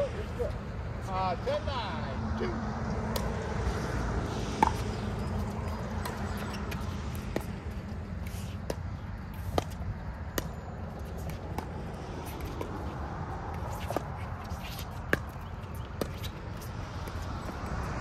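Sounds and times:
paddles striking pickleball: 0:03.1 - 0:03.4, 0:04.6 - 0:16.4.

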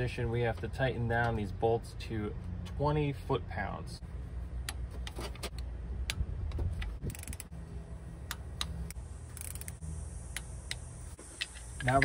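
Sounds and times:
ratchet wrench clicking: 0:06.1 - 0:07.6, 0:08.2 - 0:10.8.

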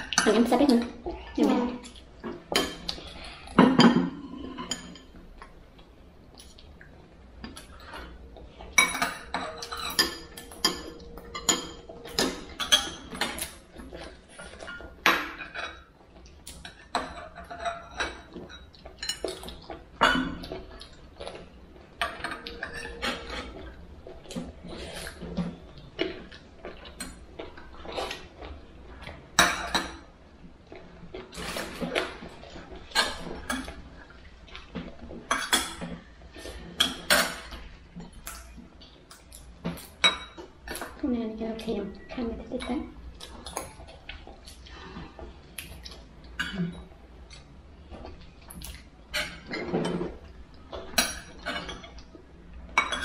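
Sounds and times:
cutlery clinking against plates: 0:01.8 - 0:05.5, 0:07.4 - 0:28.3, 0:29.0 - 0:30.1, 0:31.2 - 0:41.0, 0:48.0 - 0:52.1, 0:52.7 - 0:53.0.

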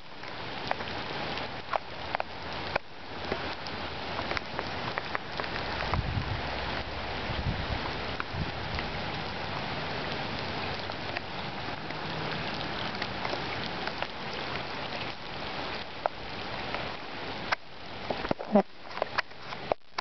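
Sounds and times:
heavy rain on standing water: 0:00.0 - 0:20.0
single raindrops clicking: 0:00.2 - 0:07.0, 0:15.8 - 0:20.0.

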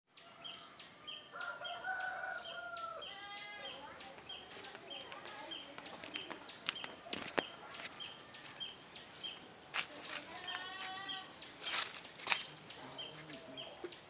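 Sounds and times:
rooster crowing: 0:00.2 - 0:03.8.

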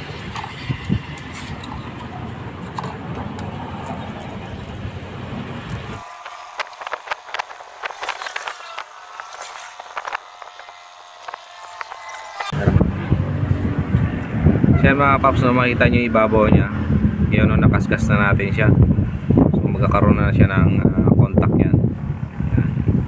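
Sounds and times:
sandpaper scratching metal contact: 0:06.0 - 0:12.5.

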